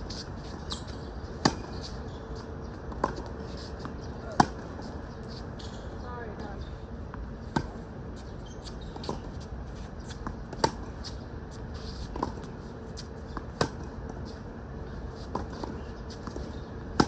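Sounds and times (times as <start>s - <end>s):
racket hitting tennis ball: 4.3s - 4.7s.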